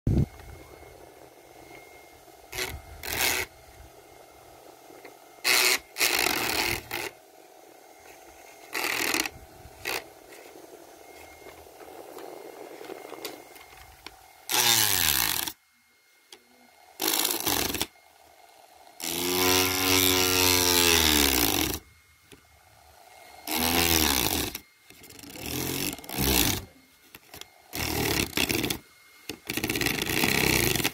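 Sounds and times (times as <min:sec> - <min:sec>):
fan motor hum: 0:00.1 - 0:30.9.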